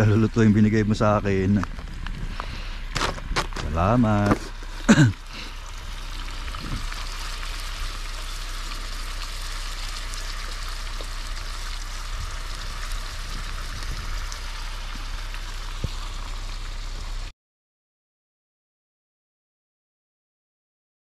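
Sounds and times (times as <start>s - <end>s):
meat sizzling in a frying pan: 5.3s - 17.2s.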